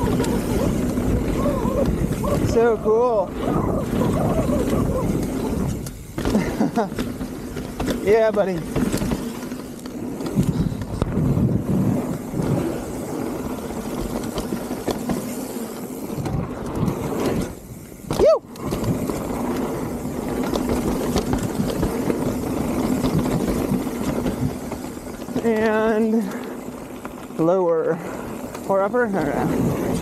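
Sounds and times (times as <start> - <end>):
wind rush on microphone: 0.0 - 9.2, 9.9 - 15.2, 28.0 - 30.0
bike tyres rattling over dirt: 0.0 - 30.0.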